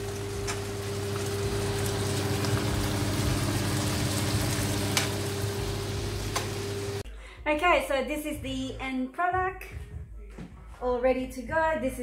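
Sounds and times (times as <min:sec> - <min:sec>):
seafood sizzling in a frying pan: 0:00.0 - 0:07.0.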